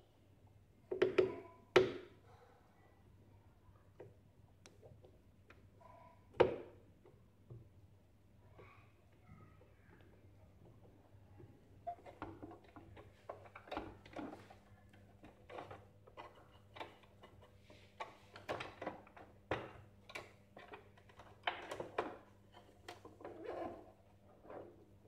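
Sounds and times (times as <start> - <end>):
plastic parts clicking and knocking: 9.9 - 23.9.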